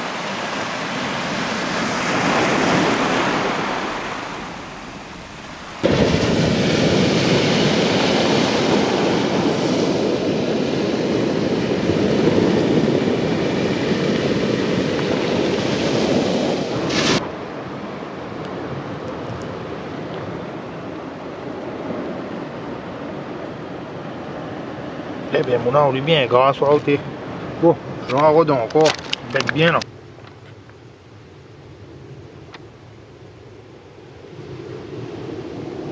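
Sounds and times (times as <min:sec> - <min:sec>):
surf on the shore: 0:00.0 - 0:30.2, 0:33.2 - 0:35.9
wind buffeting the microphone: 0:00.0 - 0:30.7.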